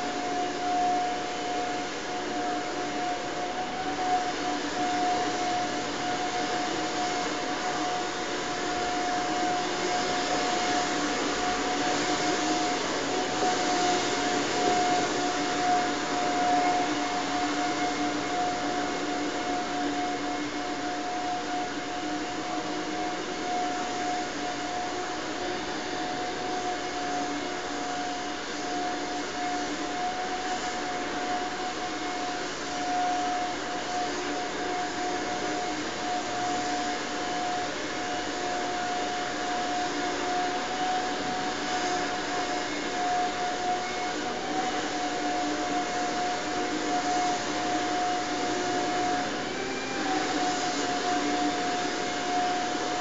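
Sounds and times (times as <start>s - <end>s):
constant high hum: 0.0s - 53.0s
steady whirring drone: 0.0s - 53.0s.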